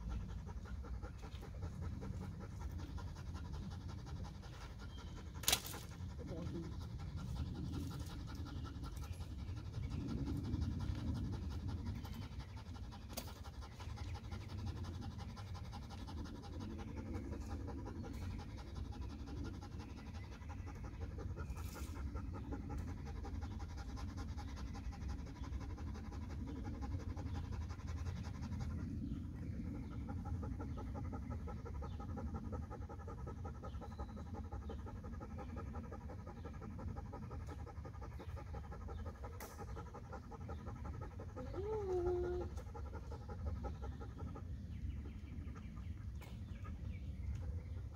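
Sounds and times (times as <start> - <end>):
dog panting: 0.0 - 47.9.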